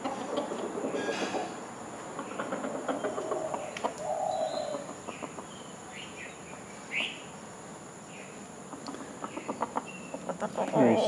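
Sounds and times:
birds chirping: 0.0 - 11.0
low drawn-out bird call: 3.0 - 4.9.

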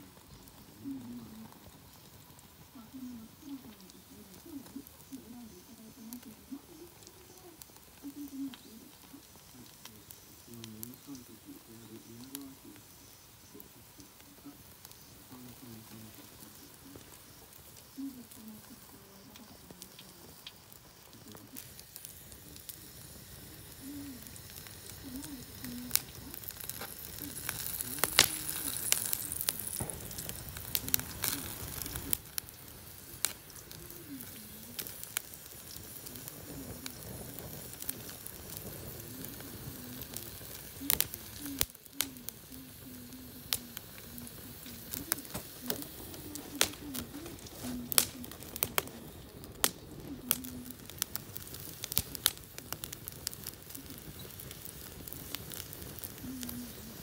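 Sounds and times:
fire crackling and popping: 0.0 - 57.0
fire hissing: 0.0 - 57.0.

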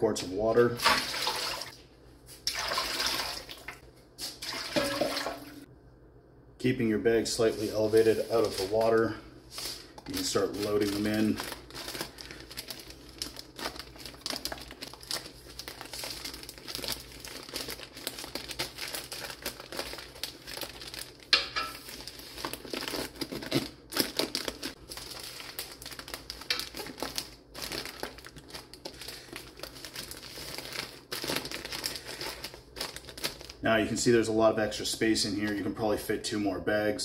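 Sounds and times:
plastic bags crinkling and rustling: 7.4 - 34.1.

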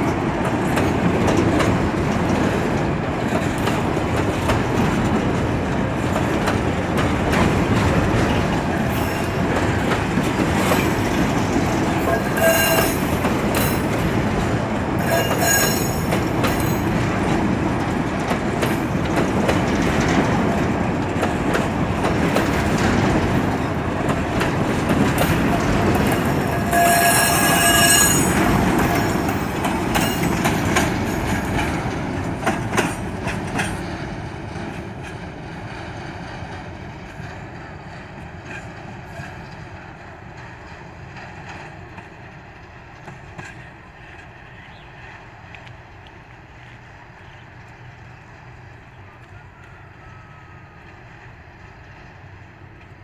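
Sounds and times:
freight train wheels rumbling and clacking: 0.0 - 53.0
high-pitched wheel squeal: 12.1 - 13.0, 15.0 - 16.1, 26.4 - 29.1.

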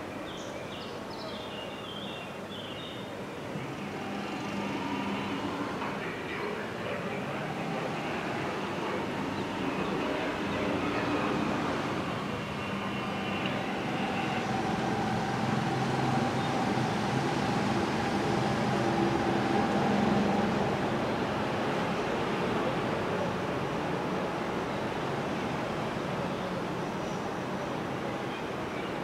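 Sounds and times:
train rumble: 3.1 - 29.0
held whine: 3.4 - 22.8.

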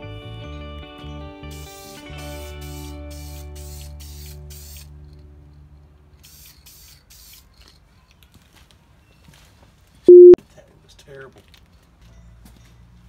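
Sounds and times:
aerosol can spraying: 1.5 - 4.9, 6.2 - 7.5.

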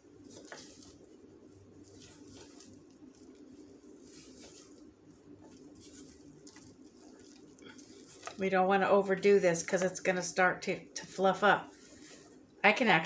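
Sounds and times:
low steady hum: 0.0 - 13.0
spatula scraping batter in bowl: 1.8 - 8.5.

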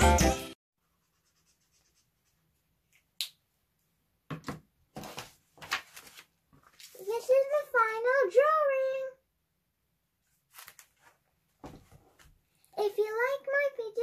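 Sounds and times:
paper rustling: 4.9 - 7.5, 10.2 - 12.4.

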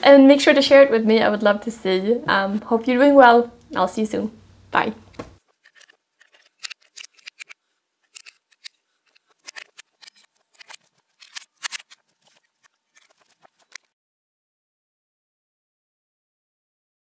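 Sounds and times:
tools clicking and clinking: 5.5 - 13.9.

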